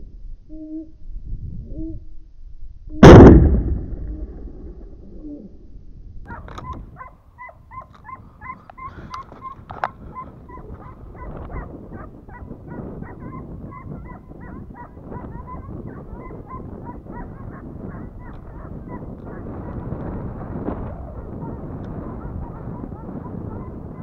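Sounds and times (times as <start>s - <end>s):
low rumble: 0.0s - 7.0s
hounds yelping: 6.3s - 24.0s.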